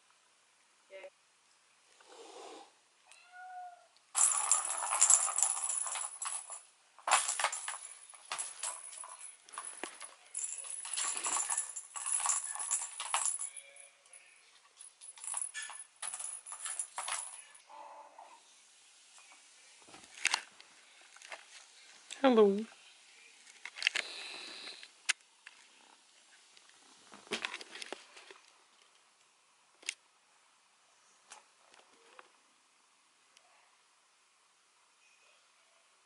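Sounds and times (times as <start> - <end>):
kitten meowing: 3.1 - 3.9
ball rattling round plastic track: 4.2 - 13.4.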